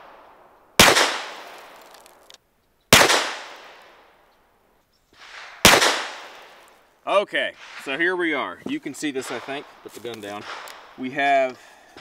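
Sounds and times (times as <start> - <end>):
pistol shots echoing: 0.8 - 1.8, 2.9 - 3.9, 5.6 - 6.6.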